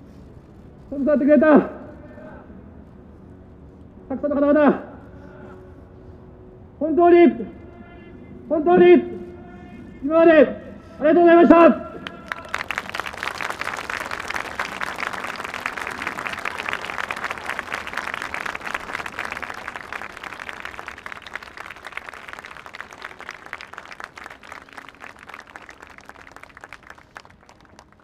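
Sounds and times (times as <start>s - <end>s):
crowd applauding: 12.0s - 28.0s.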